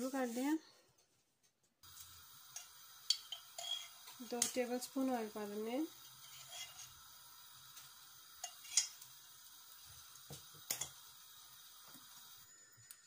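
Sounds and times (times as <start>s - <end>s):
oil hissing in a pan: 0.0s - 0.6s, 1.8s - 13.0s
light ticks of heating oil: 1.9s - 7.0s, 7.7s - 9.1s, 9.9s - 11.0s.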